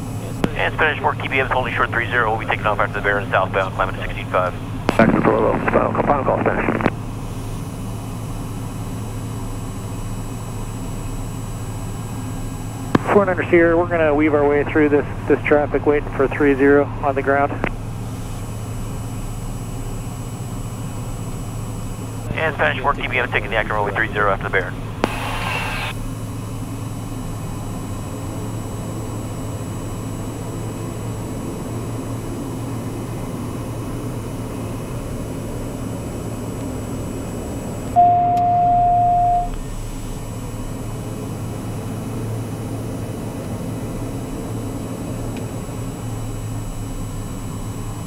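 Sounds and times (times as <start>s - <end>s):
turboprop cabin drone: 0.0s - 48.0s
electronic tone: 4.9s - 7.0s, 37.9s - 39.6s.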